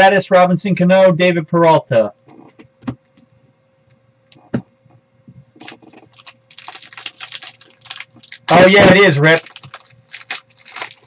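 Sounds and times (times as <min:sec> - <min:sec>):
foil wrapper crinkling: 0:05.6 - 0:11.0.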